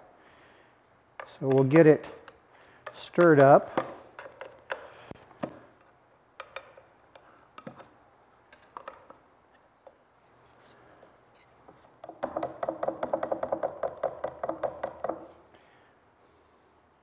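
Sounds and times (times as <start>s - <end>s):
stick tapping metal paint can: 1.2s - 4.9s, 6.4s - 7.9s.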